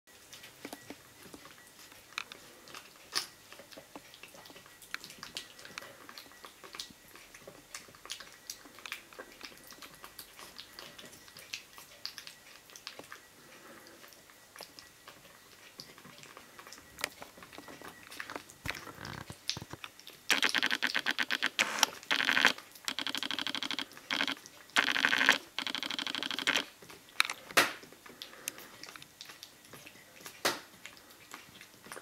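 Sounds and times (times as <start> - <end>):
kitten chewing wet food: 0.1 - 32.0
rapid buzzing rattle: 20.3 - 26.7.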